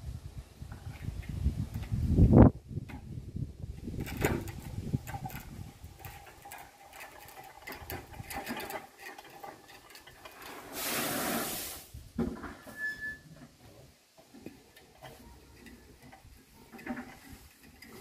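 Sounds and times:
gravel pouring: 4.2s - 12.0s.

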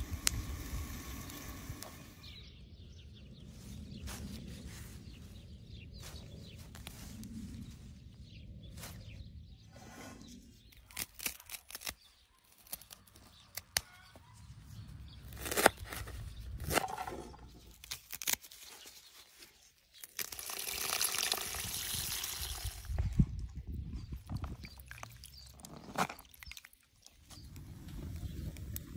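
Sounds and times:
leaves splashing in water: 20.0s - 22.9s.

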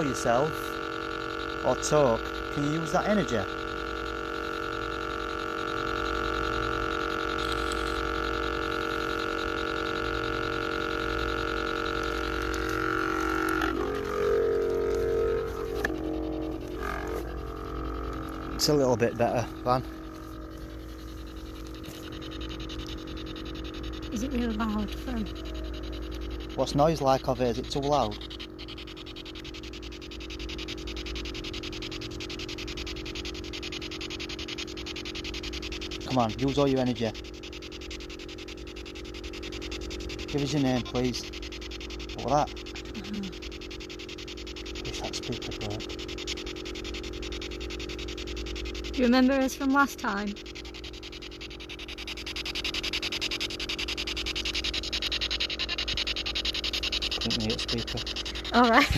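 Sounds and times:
electronic drone of held tones: 0.0s - 58.9s
low steady hum: 0.0s - 58.9s
pulsing static hiss: 0.0s - 58.9s.

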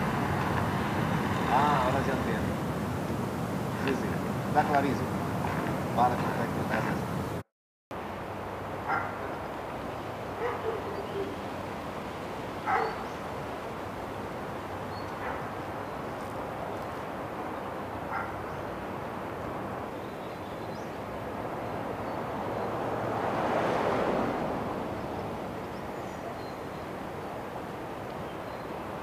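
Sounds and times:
steady rushing hiss: 0.0s - 7.4s
dog barking: 8.9s - 9.3s, 10.4s - 11.4s, 12.6s - 13.1s, 15.2s - 15.5s, 18.1s - 18.5s.

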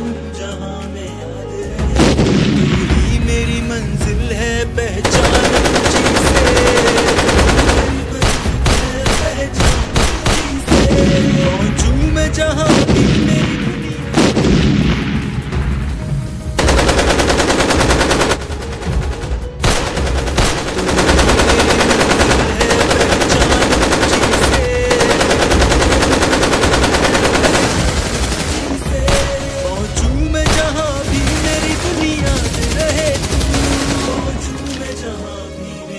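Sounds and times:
background music: 0.0s - 35.9s
automatic gunfire: 5.0s - 11.7s, 16.6s - 29.7s, 30.4s - 34.4s
sharp blasts: 5.0s - 34.6s.

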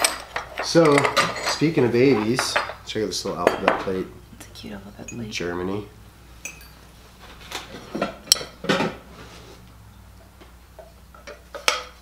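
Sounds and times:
ceramic plates clinking: 0.0s - 4.0s.

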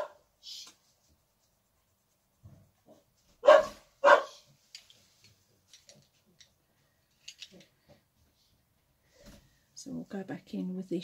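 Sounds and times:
dog barking: 0.0s - 0.2s, 2.9s - 4.5s.

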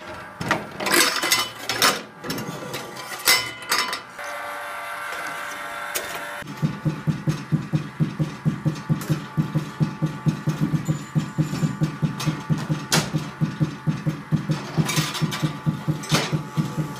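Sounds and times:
juggling balls thudding on floor: 6.5s - 16.9s.

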